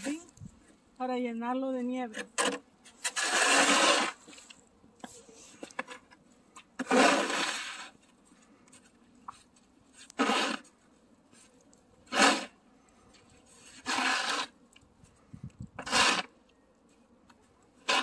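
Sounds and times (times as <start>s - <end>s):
snow shovel scraping on pavement: 2.1s - 4.5s, 6.8s - 8.0s, 9.9s - 10.8s, 12.1s - 12.6s, 13.4s - 14.6s, 15.8s - 16.4s, 17.8s - 18.0s.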